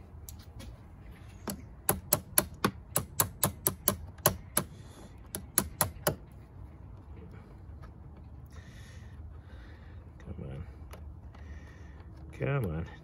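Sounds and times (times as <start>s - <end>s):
tool tapping metal bolt: 1.4s - 4.7s, 5.3s - 6.2s.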